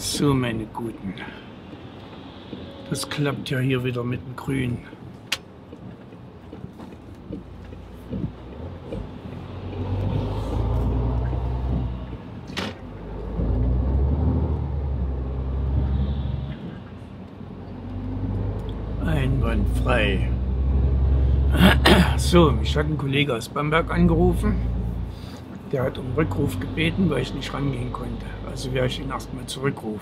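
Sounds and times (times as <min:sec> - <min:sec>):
truck diesel engine accelerating: 0:05.6 - 0:30.0.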